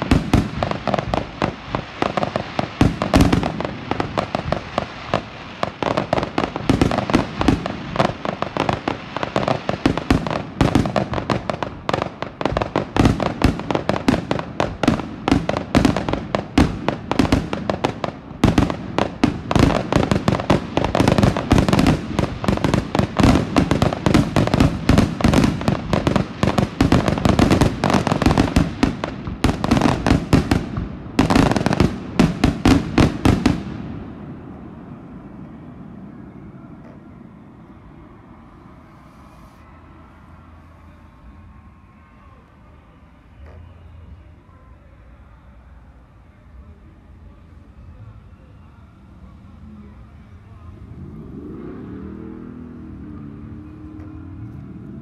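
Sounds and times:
fireworks heavy booms: 0:00.0 - 0:41.9
fireworks bangs and crackles: 0:00.0 - 0:44.6.

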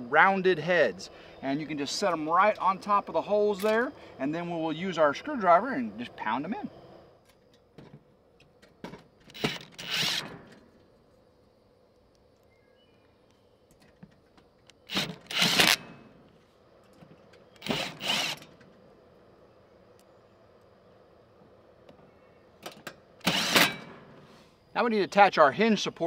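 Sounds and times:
impact driver driving screws: 0:09.3 - 0:10.4, 0:14.9 - 0:15.9, 0:17.6 - 0:18.5, 0:23.2 - 0:23.9.

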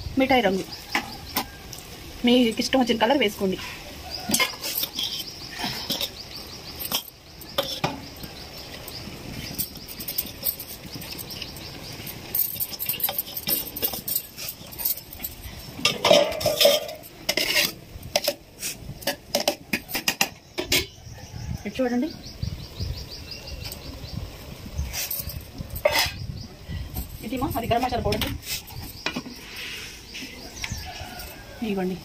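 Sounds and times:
metal dish scraping a pot: 0:03.6 - 0:08.3, 0:09.4 - 0:21.0, 0:24.9 - 0:26.3.

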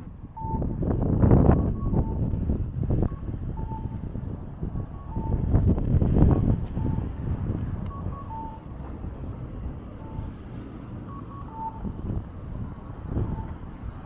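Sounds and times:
low rumble of traffic: 0:00.0 - 0:14.0
two-note electronic beeps: 0:07.9 - 0:08.7, 0:11.0 - 0:11.9.

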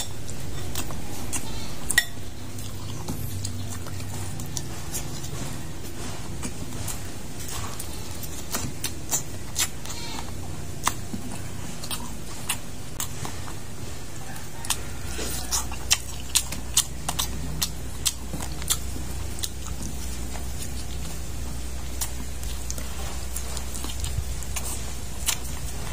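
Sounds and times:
man chewing and sucking: 0:00.0 - 0:25.9
steady low hum: 0:00.0 - 0:25.9.

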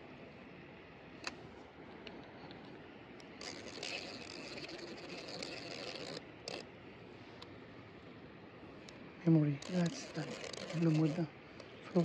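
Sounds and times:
fishing line rustling and scraping: 0:01.2 - 0:12.0
fishing reel click: 0:03.2 - 0:06.7, 0:09.6 - 0:11.2.

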